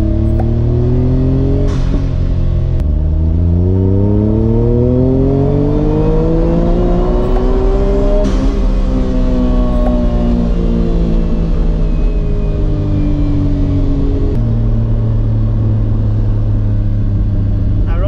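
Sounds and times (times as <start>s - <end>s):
car engine accelerating: 0.0s - 18.0s.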